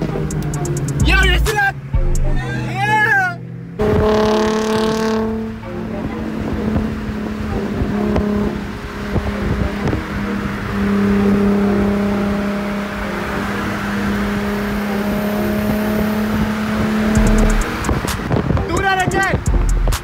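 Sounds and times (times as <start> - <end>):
car engine drone: 0.0 - 20.0
wind noise on microphone: 16.3 - 20.0.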